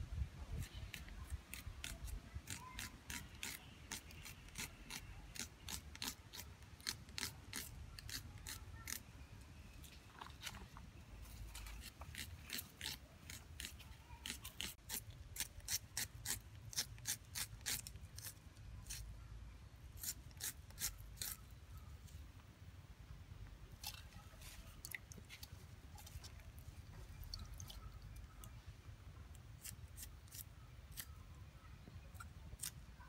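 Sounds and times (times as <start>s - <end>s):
knife crunching through onion: 1.5s - 9.0s, 11.5s - 19.0s, 20.0s - 21.4s, 32.6s - 32.8s.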